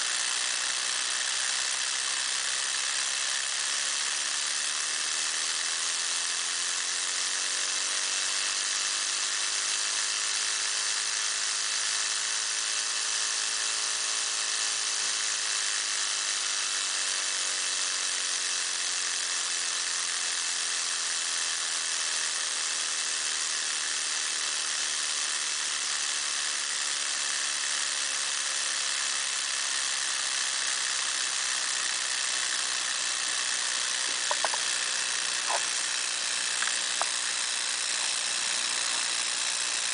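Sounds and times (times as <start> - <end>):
small engine whirring: 0.0 - 39.9
small clicks: 34.0 - 35.8, 36.5 - 37.3.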